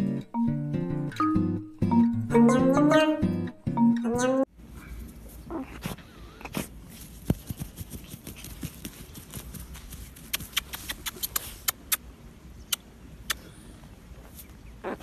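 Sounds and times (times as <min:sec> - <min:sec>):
dog scratching dry soil: 0:06.5 - 0:11.8.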